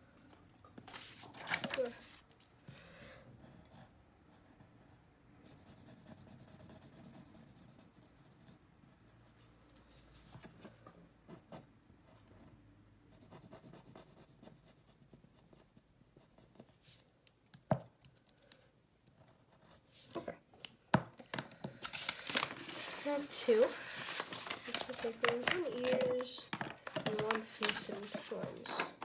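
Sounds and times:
pencil scratching on paper: 5.4 - 9.4, 13.1 - 17.0, 27.0 - 29.0.

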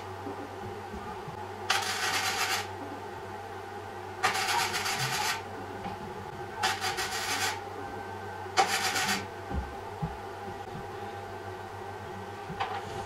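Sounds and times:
steady low hum: 0.0 - 13.0
welding arc crackling: 1.7 - 2.7, 4.2 - 5.4, 6.6 - 7.6, 8.6 - 9.2.

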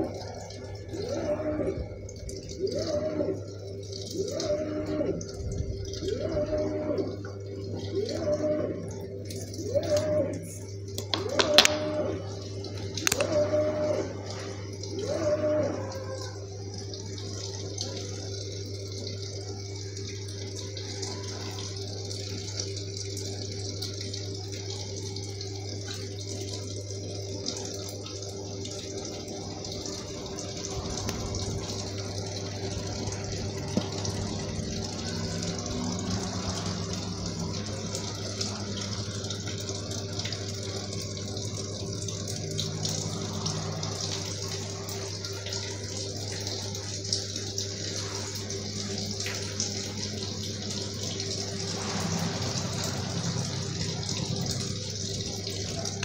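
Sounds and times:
washing machine low hum: 0.0 - 56.0
water splashing into drum: 11.0 - 12.3, 30.8 - 40.8.

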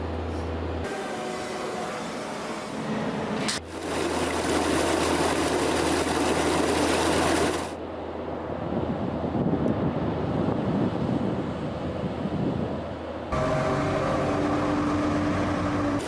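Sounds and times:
engine hum: 0.0 - 16.0
rough machine noise: 0.3 - 7.8, 13.3 - 16.0
loud rush of water-like noise: 3.6 - 7.8.

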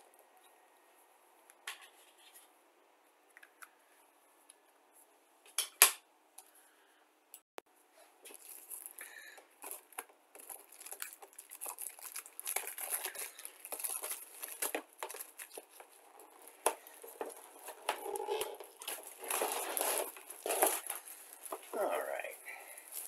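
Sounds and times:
plastic shrink-wrap crinkling and tearing: 8.2 - 23.0.

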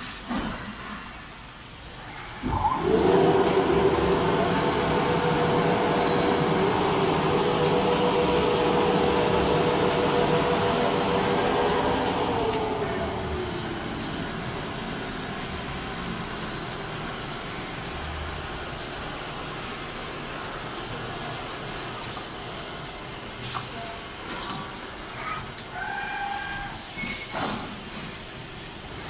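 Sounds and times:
sewing machine humming: 2.4 - 17.4.

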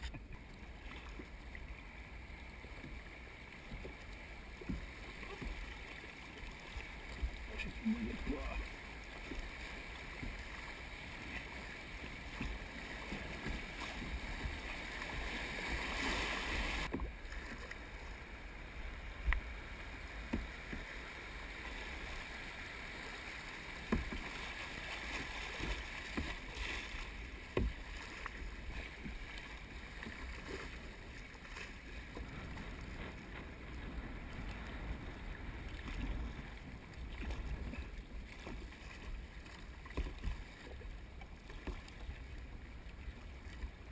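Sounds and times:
river water rushing and lapping: 0.0 - 43.9
paddle knocking on kayak hull: 3.6 - 5.7, 7.0 - 15.9, 20.1 - 21.0, 23.7 - 26.7, 27.4 - 30.7.

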